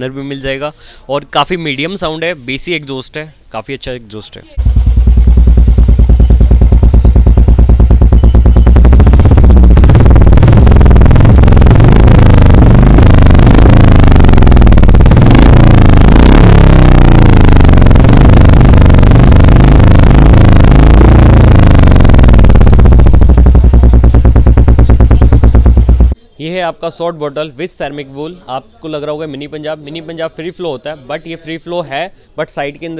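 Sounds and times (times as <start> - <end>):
motorcycle engine idling and revving: 4.6 - 26.2.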